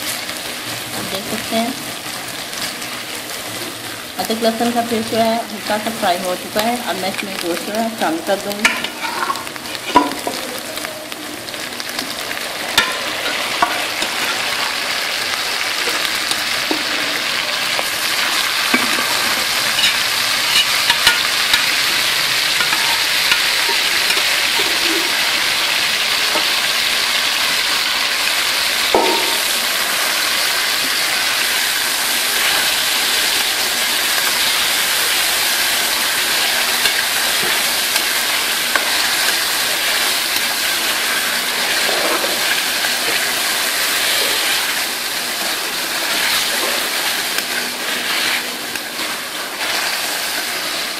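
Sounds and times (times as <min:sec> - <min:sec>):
meat sizzling in hot fat: 0:00.0 - 0:50.9
metal ladle knocking on pan: 0:28.9 - 0:29.5.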